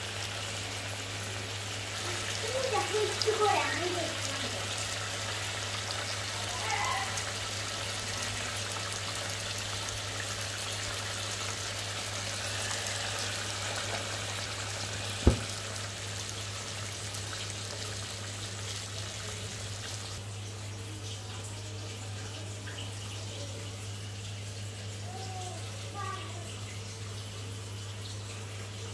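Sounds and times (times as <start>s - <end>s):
curry bubbling in a pan: 0.2s - 20.2s
sharp knock: 15.2s - 15.5s.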